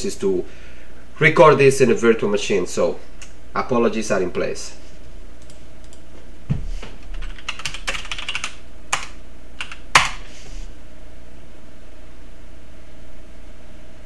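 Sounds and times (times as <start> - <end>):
computer keyboard typing: 5.4 - 6.1, 7.0 - 10.2.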